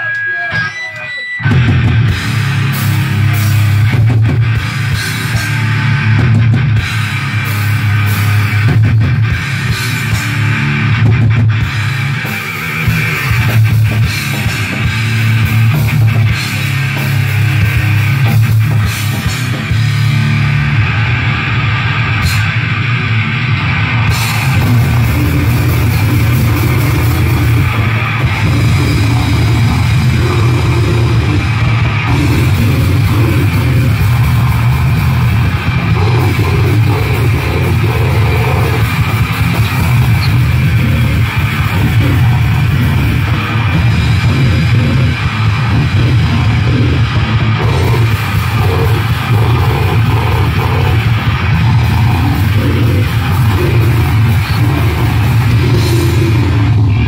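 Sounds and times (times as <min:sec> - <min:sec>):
drum kit: 0:00.0 - 0:57.0
electric guitar: 0:00.0 - 0:57.0
vocalist singing into microphone: 0:45.7 - 0:57.0.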